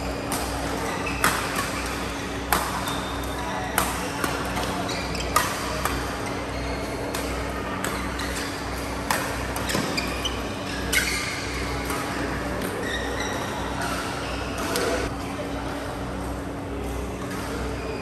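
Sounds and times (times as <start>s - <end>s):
badminton rackets hitting shuttlecock: 0.2s - 6.4s, 7.0s - 11.2s
shoe squeaks on court floor: 9.6s - 11.6s.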